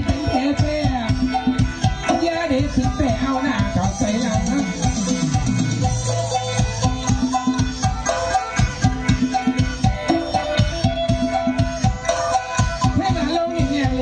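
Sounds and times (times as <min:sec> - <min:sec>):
repeating folk melody: 0:00.0 - 0:14.0
steady drum beat: 0:00.0 - 0:14.0.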